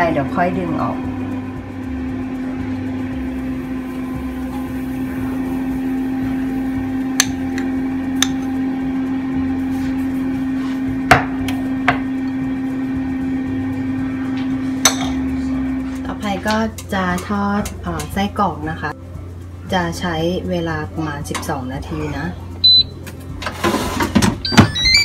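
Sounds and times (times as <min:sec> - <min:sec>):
low appliance hum: 0:00.0 - 0:25.0
utensils knocking on frying pan: 0:07.2 - 0:08.5, 0:11.1 - 0:12.2, 0:14.8 - 0:15.3.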